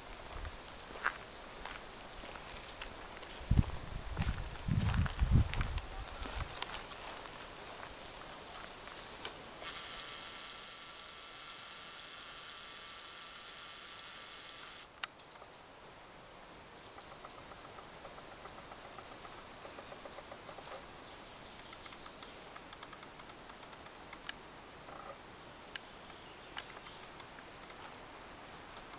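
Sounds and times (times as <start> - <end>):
small birds chirping: 0.0 - 3.7, 10.7 - 15.8, 16.7 - 24.4, 25.6 - 28.9
high buzz: 9.7 - 14.9
sharp ticks: 21.6 - 24.4, 25.7 - 27.9.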